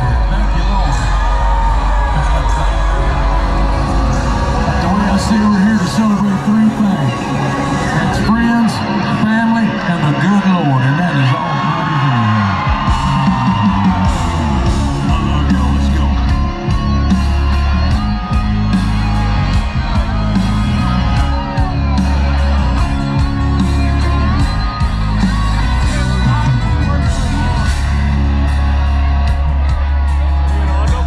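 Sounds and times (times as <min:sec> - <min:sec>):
electric guitar: 0:00.0 - 0:31.0
heavy bass: 0:00.0 - 0:31.0
live country band playing: 0:00.0 - 0:31.0
drum beat: 0:12.6 - 0:31.0.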